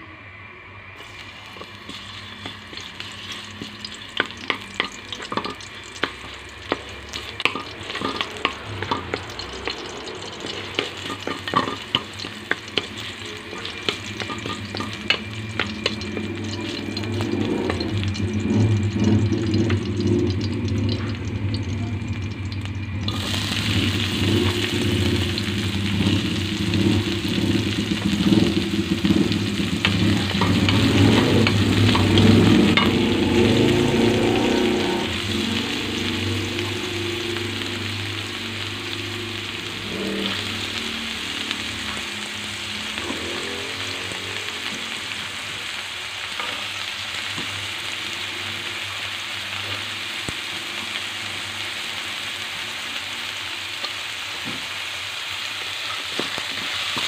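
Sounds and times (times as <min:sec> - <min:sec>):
garlic sizzling in oil: 0:01.0 - 0:57.0
wooden spatula knocking metal wok: 0:01.6 - 0:18.8.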